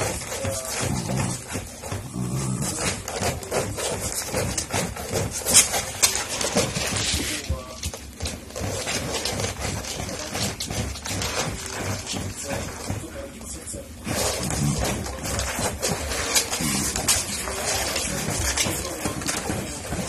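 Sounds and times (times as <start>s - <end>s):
dogs growling: 0.0s - 7.1s, 14.0s - 20.0s.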